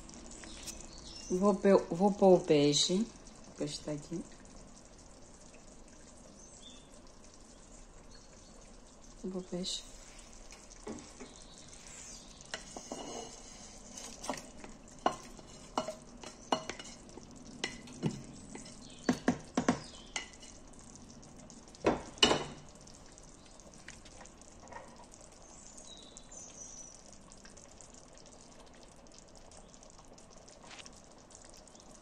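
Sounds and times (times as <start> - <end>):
stew bubbling: 0.0 - 32.0
spoon knocking and scraping pot: 12.4 - 20.6.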